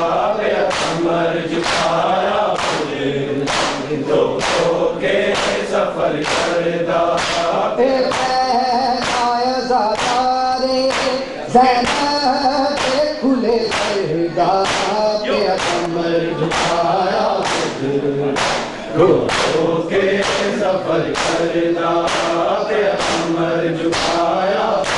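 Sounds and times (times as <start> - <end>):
men chanting together: 0.0 - 24.9
hands slapping bare chests: 0.7 - 4.7, 5.3 - 6.6, 7.2 - 8.4, 9.0 - 10.3, 10.9 - 11.2, 11.8 - 13.1, 13.7 - 14.0, 14.6 - 15.0, 16.5 - 16.8, 17.4 - 17.8, 18.4 - 18.7, 19.3 - 19.6, 20.2 - 24.9.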